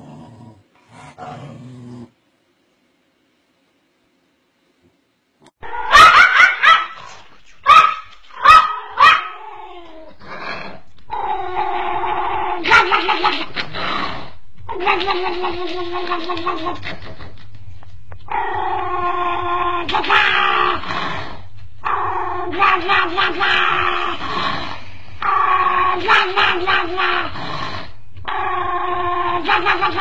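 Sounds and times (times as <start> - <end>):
dog yelping: 5.6 - 7.0, 7.7 - 9.4.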